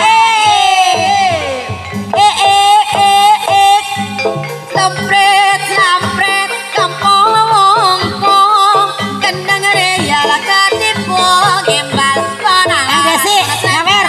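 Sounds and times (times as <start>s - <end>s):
gamelan music: 0.0s - 14.0s
high wavering melody: 0.0s - 14.0s
low repeating beats: 3.0s - 13.9s.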